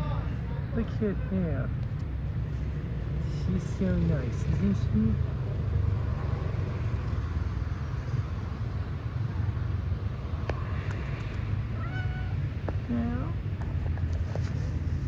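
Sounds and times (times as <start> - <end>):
road traffic rumble: 0.0 - 15.0
faint clicks: 10.4 - 11.5.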